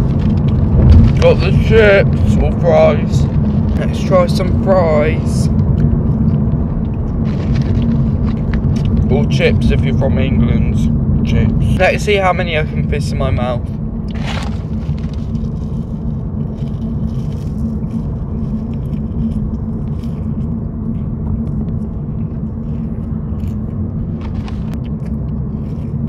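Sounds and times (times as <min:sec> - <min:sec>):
car cabin road rumble: 0:00.0 - 0:26.0
paper carton rustling: 0:14.1 - 0:17.8.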